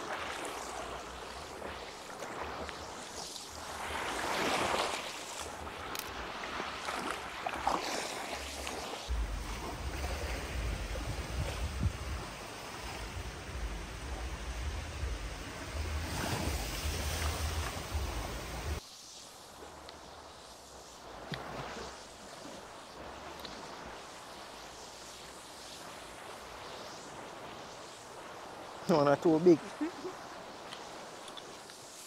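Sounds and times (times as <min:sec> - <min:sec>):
small waves washing on shore: 0:00.0 - 0:32.0
wind buffeting microphone: 0:09.1 - 0:18.8.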